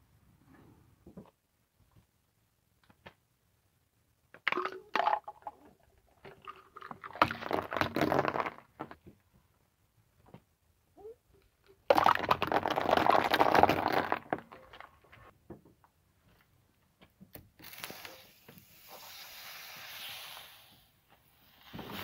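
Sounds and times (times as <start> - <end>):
juice spraying hiss: 17.6 - 22.0.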